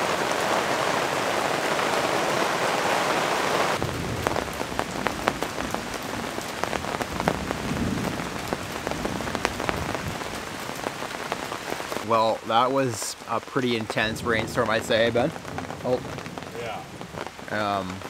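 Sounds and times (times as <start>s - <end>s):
heavy rain on fabric canopy: 0.0s - 18.0s
rain falling through trees: 0.0s - 18.0s.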